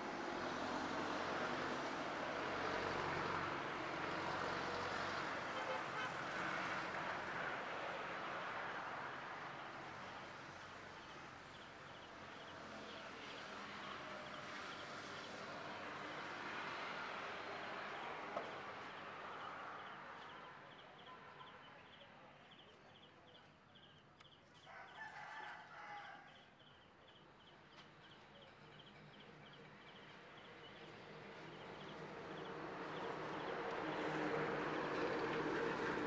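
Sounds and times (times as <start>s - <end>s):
rooster crowing: 24.6s - 26.5s.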